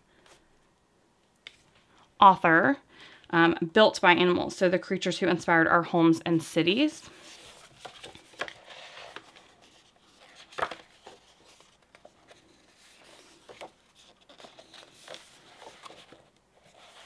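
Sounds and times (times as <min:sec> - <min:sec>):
book pages flipping: 0:07.1 - 0:17.0.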